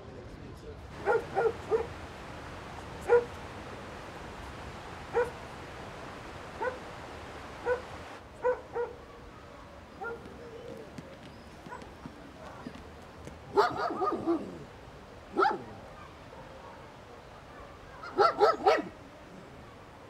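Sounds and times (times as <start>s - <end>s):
running water: 0.8s - 10.2s
dog barking: 0.9s - 2.1s, 3.0s - 3.5s, 5.0s - 5.6s, 6.5s - 9.2s, 10.0s - 10.3s, 13.5s - 14.6s, 15.3s - 19.0s.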